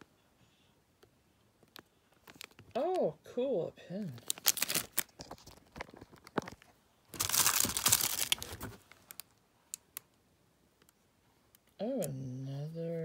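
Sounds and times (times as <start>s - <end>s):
packaging crinkling: 1.7s - 2.8s, 4.2s - 9.8s.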